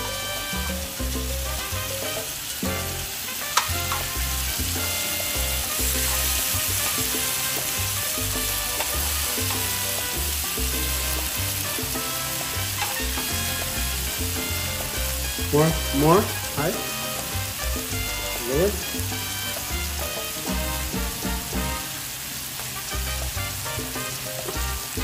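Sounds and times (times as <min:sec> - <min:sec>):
background music with bass: 0:00.0 - 0:22.0, 0:22.8 - 0:25.0
meat sizzling in a grill pan: 0:00.0 - 0:25.0
metal tongs clicking against pan: 0:03.6 - 0:04.1, 0:08.8 - 0:09.7, 0:12.8 - 0:13.1.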